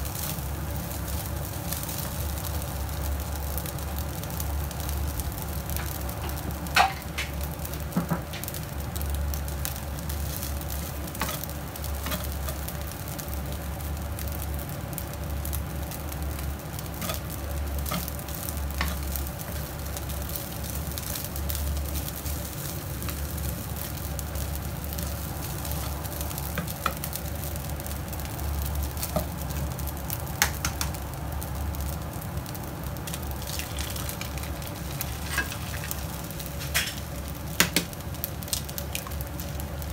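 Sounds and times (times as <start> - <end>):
rice sizzling in a pan: 0.0 - 39.9
spatula scraping a pan: 17.0 - 18.1, 33.5 - 37.0.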